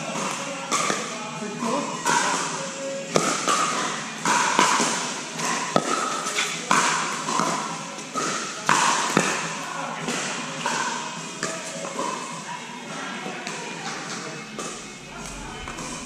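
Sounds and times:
music: 0.0s - 16.0s
background voices: 13.9s - 16.0s.

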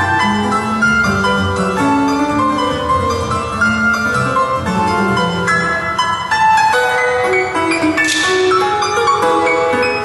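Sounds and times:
two pianos playing fast piece: 0.0s - 10.0s.

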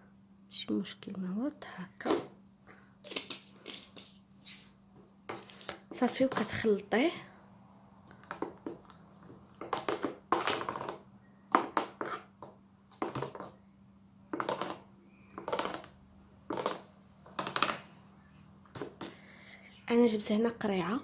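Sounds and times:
metal spoon scraping bowl: 11.9s - 12.3s.

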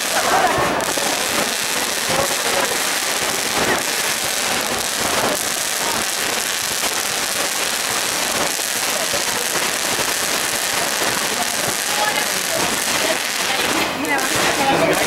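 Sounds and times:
fountain firework hissing: 0.0s - 15.0s.

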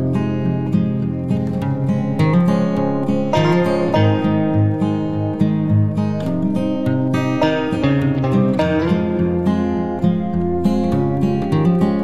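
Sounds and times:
acoustic guitar background music: 0.0s - 12.0s.

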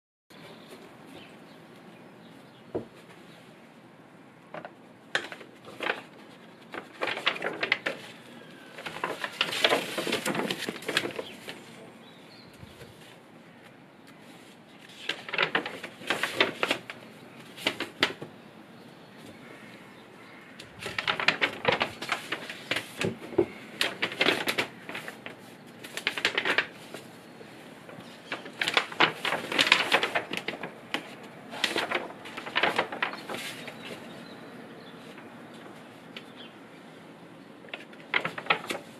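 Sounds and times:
paper pages rustling: 4.5s - 11.9s, 12.6s - 18.4s, 20.4s - 36.5s, 37.6s - 38.9s.

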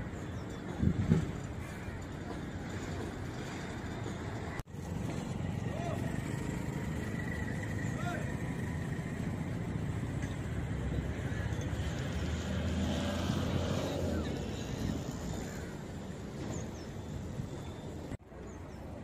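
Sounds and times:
vehicle engine droning: 4.4s - 18.0s.

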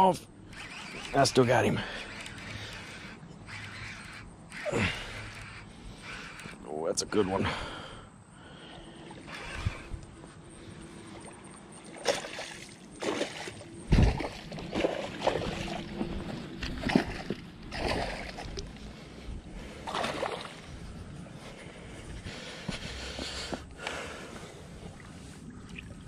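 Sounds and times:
water splashes: 11.1s - 18.8s, 19.8s - 20.7s, 24.8s - 26.0s.

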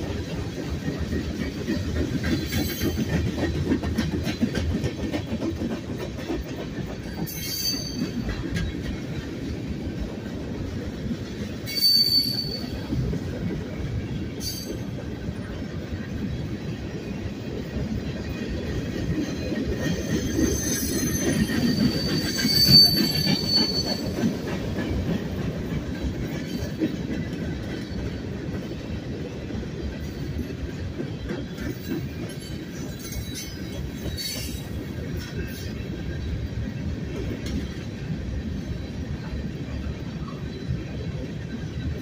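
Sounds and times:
train wheels rumbling on rail: 0.0s - 42.0s
high-pitched wheel squeal: 7.3s - 8.1s, 11.7s - 12.8s, 19.9s - 24.2s.

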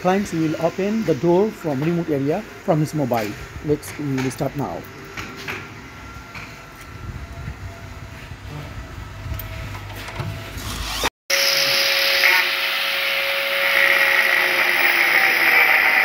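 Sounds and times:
angle grinder grinding metal: 10.7s - 16.0s.

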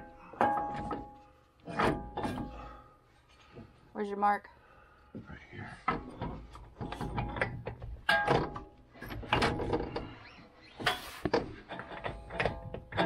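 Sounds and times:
metal parts clanking: 0.0s - 2.8s, 6.0s - 13.0s.

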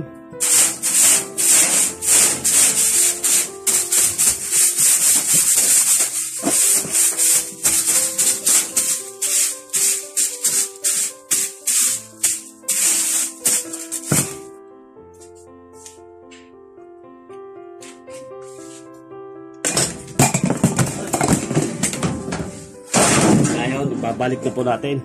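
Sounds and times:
background music with shaker beat: 0.4s - 14.4s.

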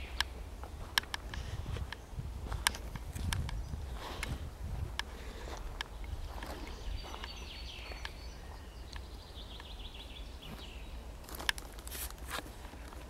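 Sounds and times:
songbird singing high notes: 5.9s - 11.1s
footsteps on dry leaves: 10.5s - 13.0s.

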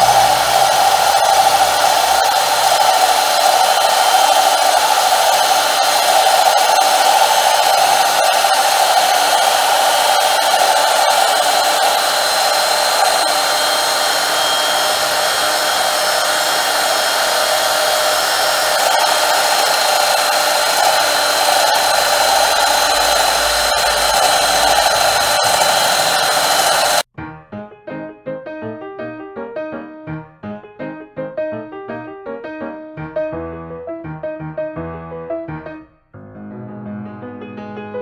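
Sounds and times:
lathe turning wood: 0.0s - 27.1s.

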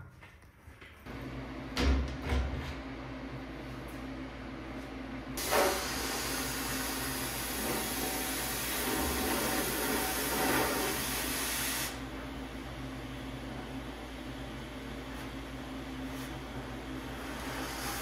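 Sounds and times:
loud pop of plasma cutter: 5.4s - 6.2s
plasma cutter hissing: 5.4s - 12.0s, 17.3s - 18.0s.

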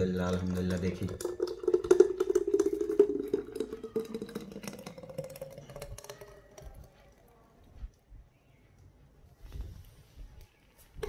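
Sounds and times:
smoothie pouring into jug: 0.0s - 7.2s.

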